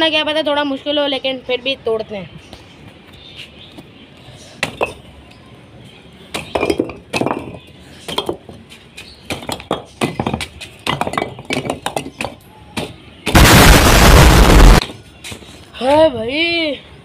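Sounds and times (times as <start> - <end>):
bricks knocking and clinking: 4.6 - 5.0, 6.3 - 13.0
loud harsh rush of noise: 13.3 - 14.8.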